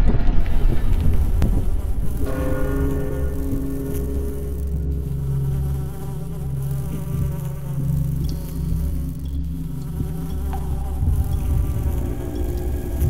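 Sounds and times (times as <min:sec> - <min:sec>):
deep rumble: 0:00.0 - 0:13.0
low droning held tones: 0:00.0 - 0:13.0
faint ticks: 0:03.4 - 0:13.0.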